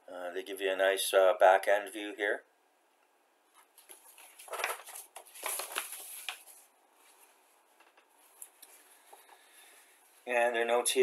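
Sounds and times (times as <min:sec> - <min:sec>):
paper rustling and crinkling: 0:03.6 - 0:09.4.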